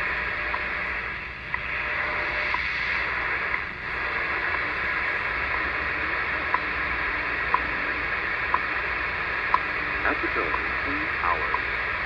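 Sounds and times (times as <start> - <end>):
high time signal ticks: 0.0 - 12.0
shortwave radio hiss: 0.0 - 12.0.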